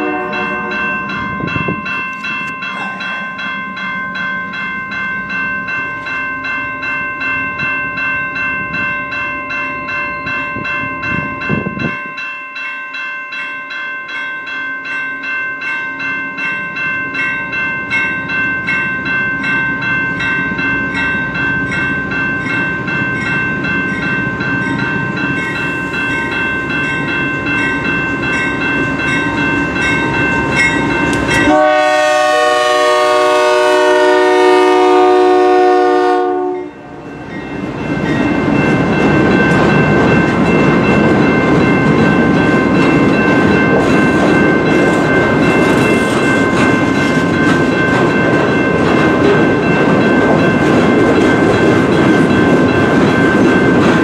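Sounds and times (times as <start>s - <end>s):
locomotive air horn: 0.0s - 0.9s, 31.4s - 36.9s
freight train rumble and clickety-clack: 0.0s - 12.2s, 16.4s - 54.0s
railroad crossing bell ringing: 0.0s - 54.0s.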